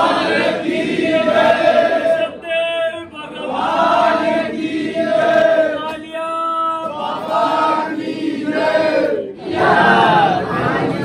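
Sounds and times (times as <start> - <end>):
crowd chanting: 0.0 - 6.1, 6.8 - 11.0.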